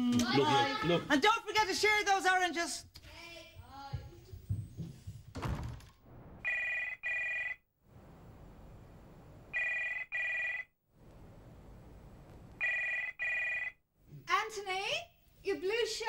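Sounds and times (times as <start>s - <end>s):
telephone double ring: 6.4s - 7.6s, 9.6s - 10.7s, 12.6s - 13.8s.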